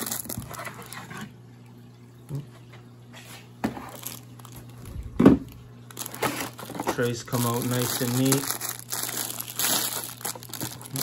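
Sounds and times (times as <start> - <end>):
bagged media crinkling: 0.0 - 1.1, 3.8 - 11.0
plastic trays being handled: 3.6 - 11.0.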